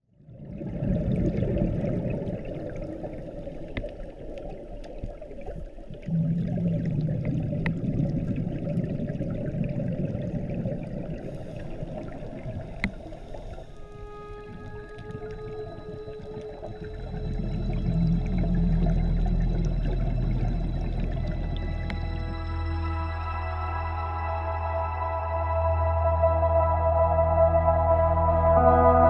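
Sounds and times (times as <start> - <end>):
underwater water noise: 0.0 - 29.0
diver's exhaled bubbles rumbling: 0.2 - 22.8.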